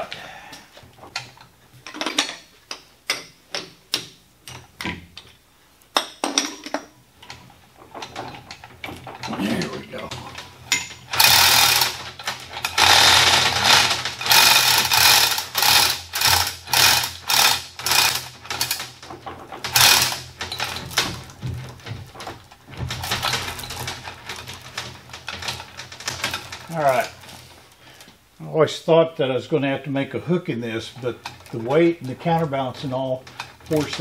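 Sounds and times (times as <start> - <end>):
steel chain clattering through hoist: 8.0 - 21.4, 22.2 - 27.3, 30.8 - 34.0.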